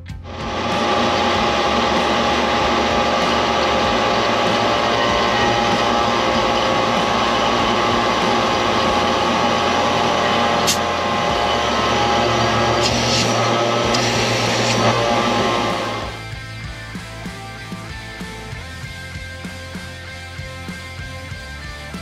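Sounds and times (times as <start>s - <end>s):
background music: 0.0s - 22.0s
vacuum pump running: 0.2s - 16.3s.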